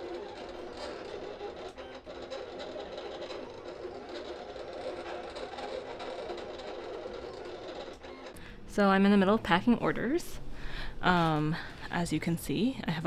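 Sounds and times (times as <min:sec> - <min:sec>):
small machine whirring: 0:00.0 - 0:08.7.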